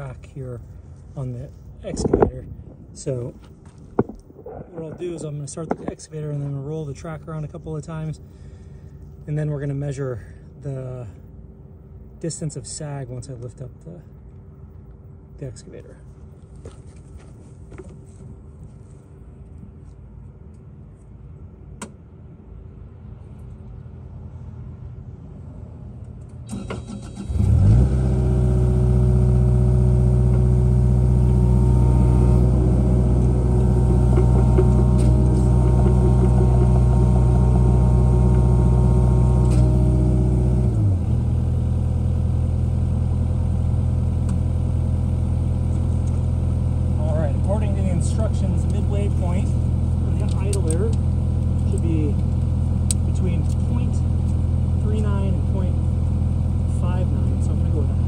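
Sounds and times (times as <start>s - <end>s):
diesel excavator engine running: 0.0s - 12.2s, 26.3s - 58.0s.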